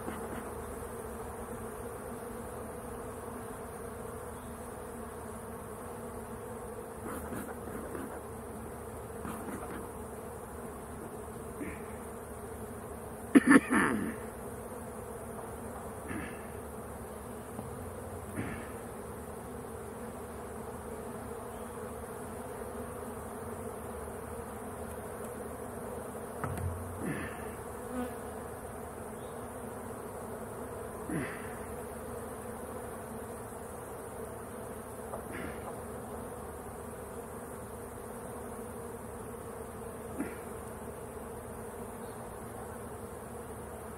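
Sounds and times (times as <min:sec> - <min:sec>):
honeybees buzzing: 0:00.0 - 0:43.9
wooden hive frames knocking: 0:26.4 - 0:27.0.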